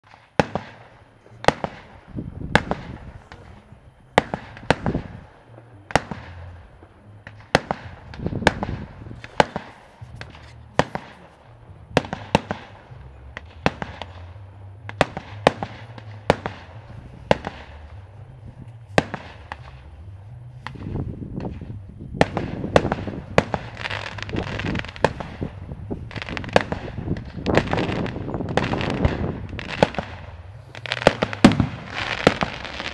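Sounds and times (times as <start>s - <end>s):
fireworks bursting: 0.0s - 32.9s
rumbling echo: 0.0s - 32.9s.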